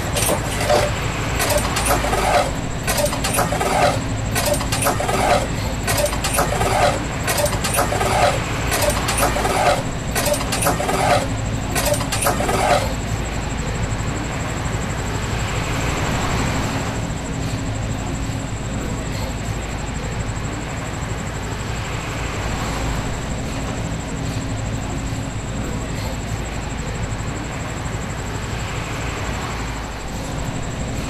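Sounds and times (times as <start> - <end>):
hand water pump squeaking and clanking: 0.0 - 13.0.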